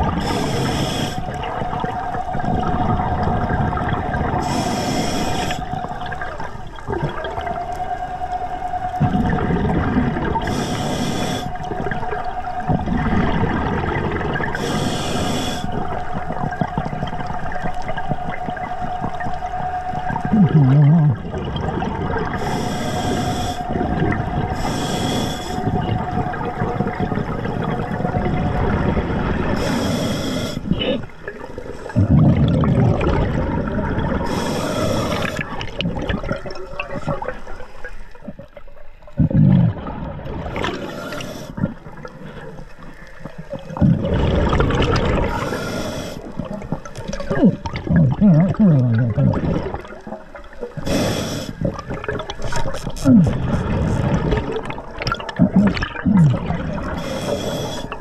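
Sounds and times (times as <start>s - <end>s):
exhaled bubbles gurgling: 0.0s - 58.0s
regulator inhale hiss: 0.2s - 1.4s, 4.4s - 5.7s, 10.4s - 11.7s, 14.6s - 15.8s, 22.4s - 23.7s, 24.5s - 25.8s, 29.6s - 30.8s, 34.2s - 35.6s, 40.6s - 41.6s, 45.3s - 46.4s, 50.8s - 51.7s, 56.9s - 58.0s.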